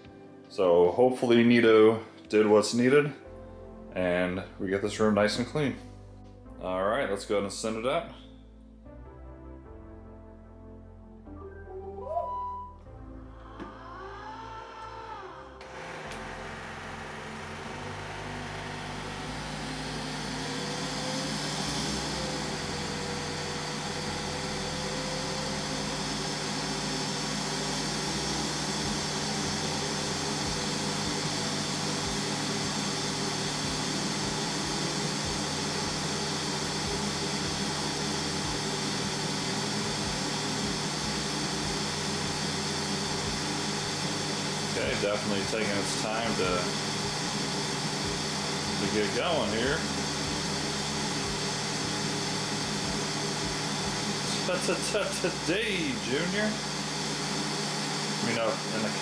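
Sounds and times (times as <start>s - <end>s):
robot vacuum suction motor: 13.5s - 59.0s.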